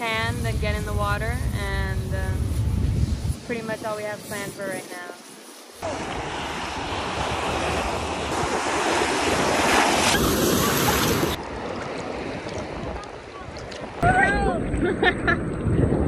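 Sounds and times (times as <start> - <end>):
wind buffeting microphone: 0.0 - 5.2, 5.8 - 16.0
ocean surf breaking: 5.8 - 14.8.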